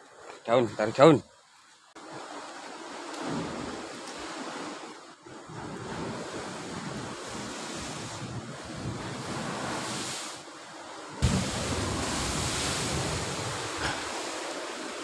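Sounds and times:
waves washing against rocks: 0:02.0 - 0:15.0
wind buffeting microphone: 0:05.2 - 0:10.2, 0:10.8 - 0:15.0
sudden thump: 0:11.2 - 0:12.2.

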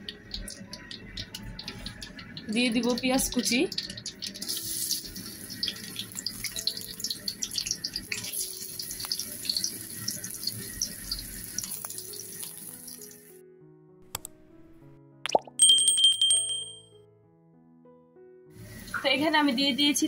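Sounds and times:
background music: 0:00.0 - 0:20.0
onions sizzling in hot oil: 0:00.1 - 0:13.3, 0:18.6 - 0:20.0
clicks: 0:14.0 - 0:14.4.

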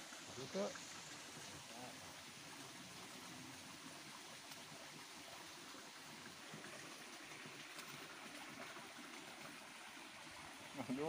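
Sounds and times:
water flowing in small stream: 0:00.0 - 0:11.0.

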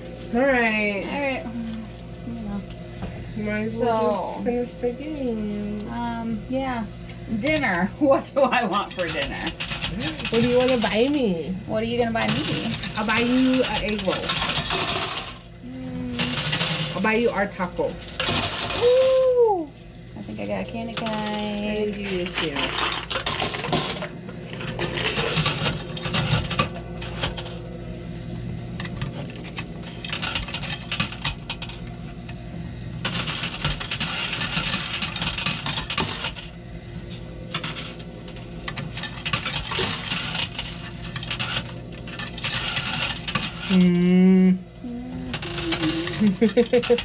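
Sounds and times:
steady machine hum: 0:00.0 - 0:47.0
coins clinking and jingling: 0:09.0 - 0:10.9, 0:12.2 - 0:19.2, 0:33.0 - 0:43.9, 0:45.3 - 0:47.0.

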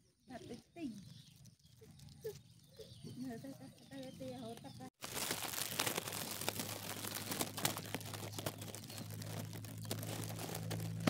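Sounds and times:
cat chewing grass: 0:05.0 - 0:11.0.

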